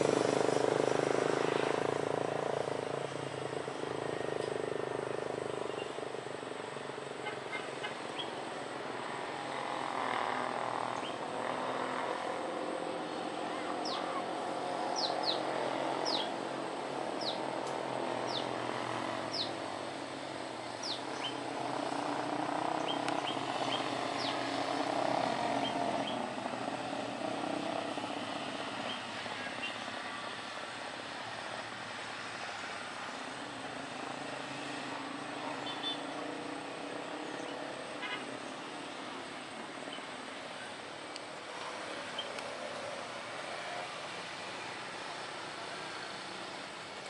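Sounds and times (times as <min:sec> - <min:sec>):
bird chirps: 0:14.9 - 0:15.4, 0:16.0 - 0:16.3, 0:17.2 - 0:17.4, 0:18.3 - 0:18.5, 0:19.3 - 0:19.6, 0:20.8 - 0:21.4, 0:22.8 - 0:24.4.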